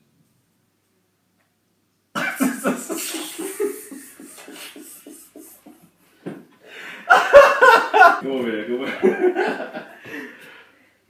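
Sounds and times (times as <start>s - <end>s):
man laughing hard: 2.2s - 5.8s, 7.0s - 8.2s, 8.9s - 10.3s.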